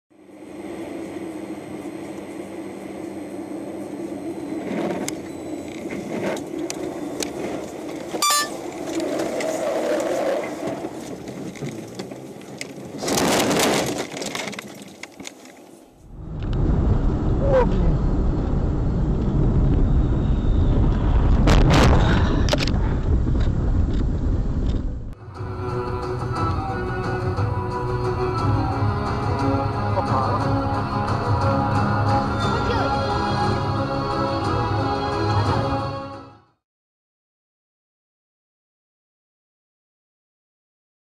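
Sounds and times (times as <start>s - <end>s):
car engine and tyre noise: 0.1s - 35.6s
low road rumble: 0.1s - 36.6s
car scraping through snow and brush: 8.3s - 14.9s.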